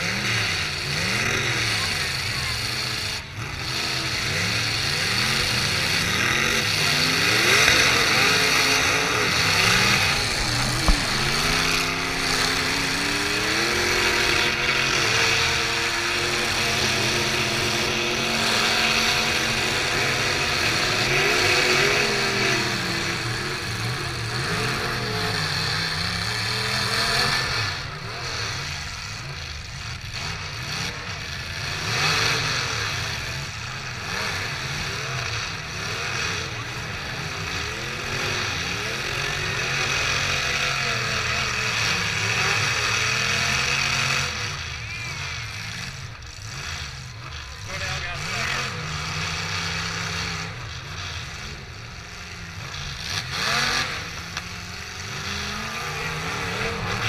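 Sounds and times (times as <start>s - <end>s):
car engines revving: 0.0s - 57.0s
sharp bang: 9.4s - 13.8s.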